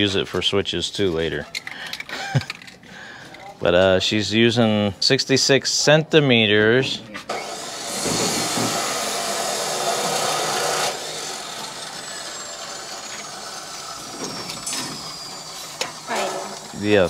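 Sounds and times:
power tool running: 0:07.3 - 0:17.0.

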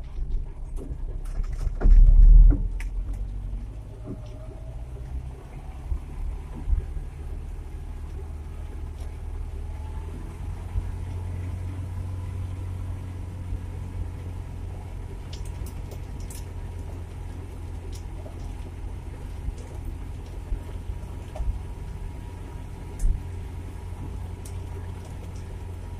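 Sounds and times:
pickup engine drone from cab: 0:00.0 - 0:25.9.

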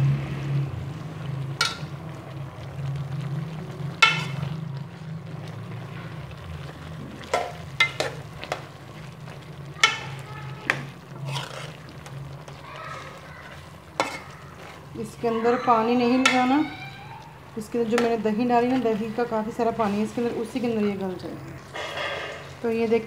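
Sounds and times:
food sizzling in a pan: 0:00.0 - 0:23.0
low steady hum: 0:00.0 - 0:23.0
utensil scraping metal pan: 0:04.0 - 0:04.6, 0:09.8 - 0:12.6, 0:13.4 - 0:14.9, 0:21.7 - 0:22.7.

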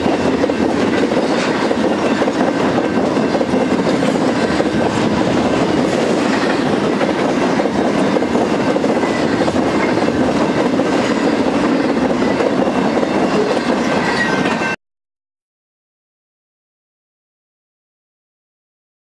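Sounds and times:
steel train wheels on rail: 0:00.0 - 0:14.8.

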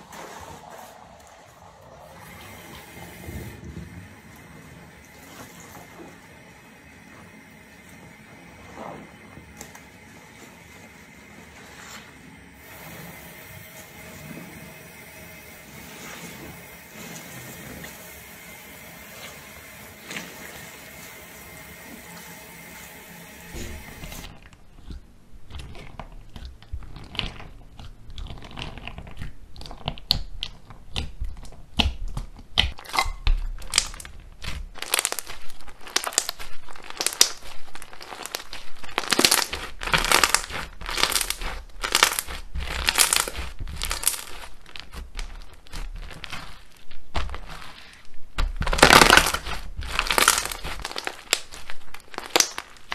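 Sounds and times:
slime crackling and popping: 0:23.5 - 0:52.9.

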